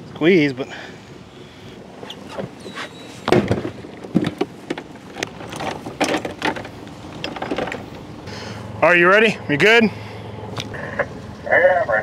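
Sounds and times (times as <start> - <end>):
knocks and clatters: 3.2 - 8.0.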